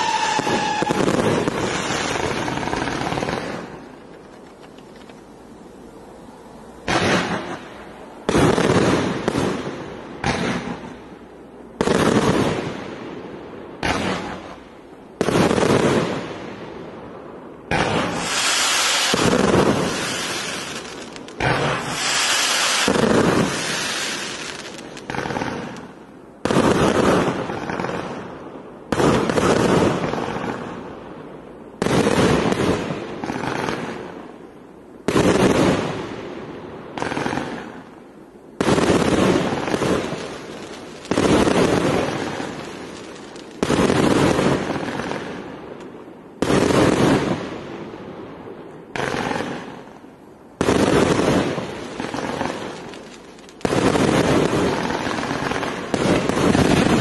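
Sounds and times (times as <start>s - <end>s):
firework cake blasts: 0.0s - 4.1s, 17.7s - 28.3s, 38.6s - 45.5s, 50.6s - 57.0s.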